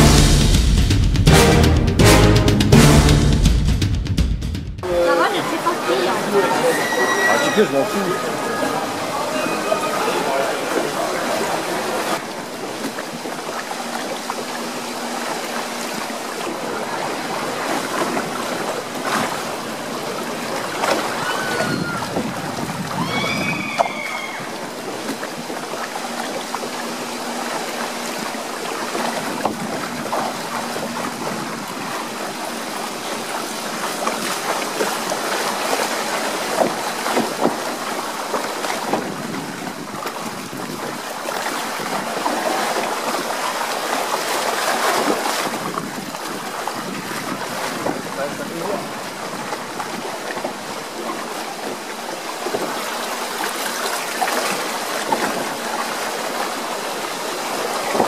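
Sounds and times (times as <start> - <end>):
water rushing along flume channel: 4.8 - 58.0.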